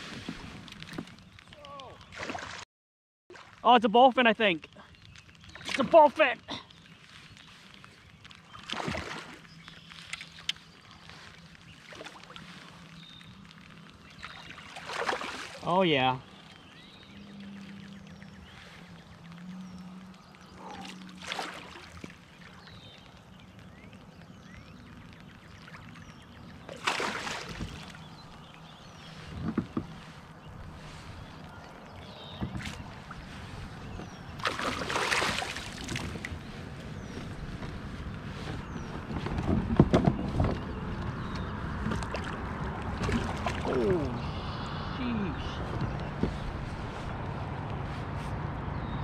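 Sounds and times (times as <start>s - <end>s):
fish splashing at water surface: 14.2s - 15.7s, 20.6s - 22.2s, 26.7s - 28.0s, 34.4s - 36.3s
fish splashing at surface: 26.7s - 27.9s, 34.4s - 36.2s.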